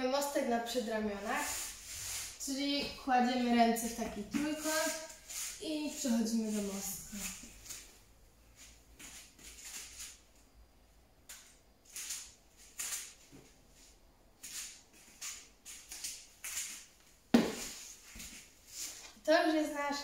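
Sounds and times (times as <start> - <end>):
body thumping onto foam mat: 17.3 - 17.8.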